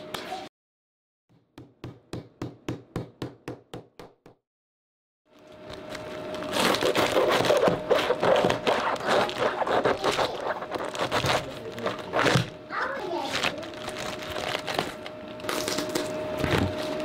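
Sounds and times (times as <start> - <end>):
cabbage rustling and crackling: 5.8 - 17.0.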